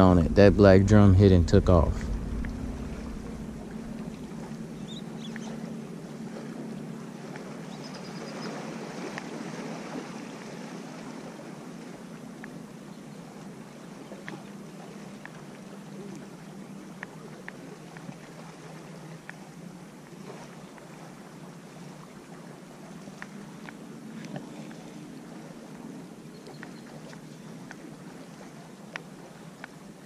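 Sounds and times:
faint low hum: 0.0 - 29.3
lake water washing: 0.0 - 30.0
wind: 0.0 - 30.0
light ticks: 5.2 - 5.5, 9.1 - 9.3, 12.4 - 12.6, 14.2 - 14.5, 15.2 - 15.4, 17.0 - 18.2, 19.2 - 19.4, 23.0 - 24.8, 26.4 - 27.9, 28.9 - 29.8.

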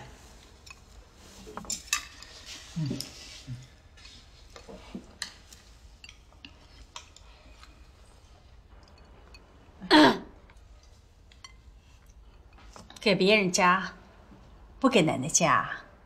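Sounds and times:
chopsticks clinking on porcelain: 5.1 - 7.7.

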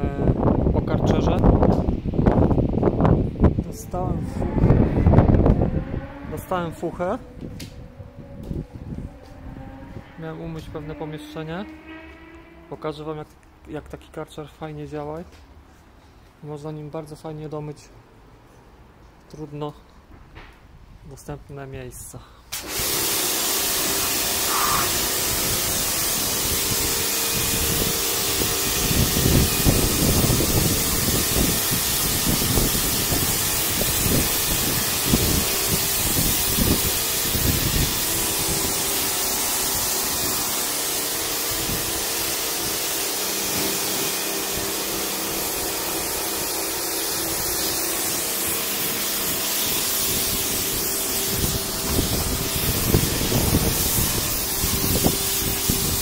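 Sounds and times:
low rumble bursts: 0.0 - 13.1
pressure washer jet hissing: 22.5 - 56.0
pump motor humming: 22.6 - 56.0.

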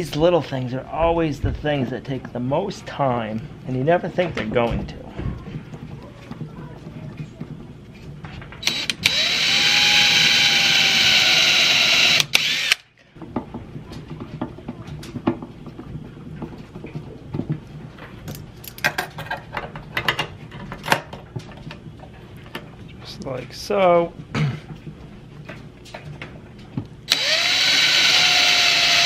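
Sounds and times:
cordless drill motor running: 8.6 - 12.8, 27.1 - 29.0.

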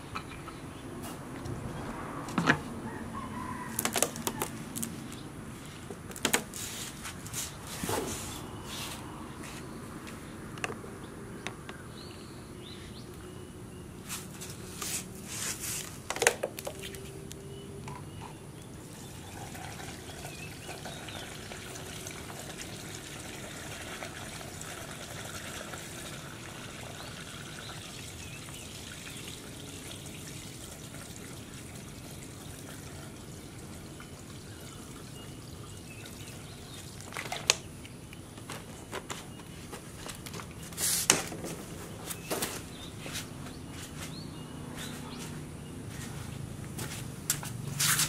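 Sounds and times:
liquid trickling into plastic tank: 18.9 - 37.7.

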